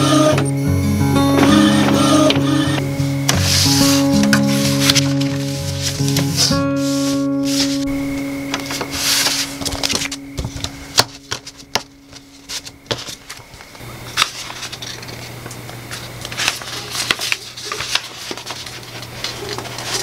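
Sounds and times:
printer feeding paper: 0.0s - 0.6s, 1.4s - 11.6s, 14.0s - 20.0s
paper rustling: 1.3s - 20.0s.

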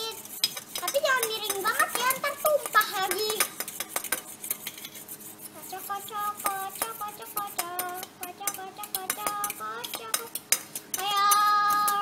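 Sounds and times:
whisk clinking in metal bowl: 0.0s - 12.0s
faint voice humming a tune: 11.0s - 12.0s.

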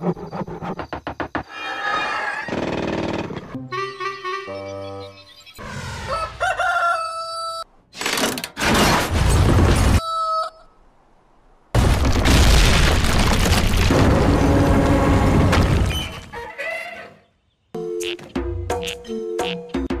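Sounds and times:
rooster crowing: 6.0s - 7.7s, 10.0s - 10.8s.

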